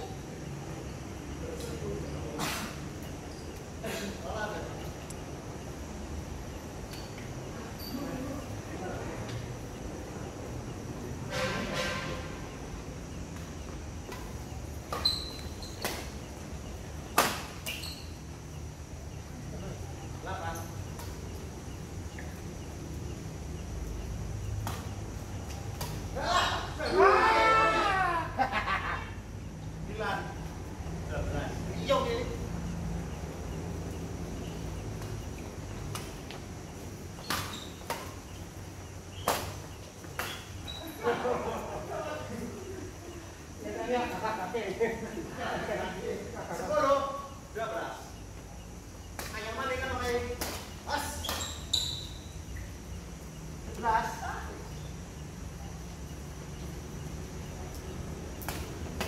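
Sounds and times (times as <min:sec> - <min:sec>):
rackets hitting shuttlecock: 0:14.0 - 0:16.3, 0:17.0 - 0:17.9, 0:24.6 - 0:26.2, 0:37.2 - 0:38.4, 0:39.2 - 0:40.6, 0:50.3 - 0:51.7, 0:58.4 - 0:59.0.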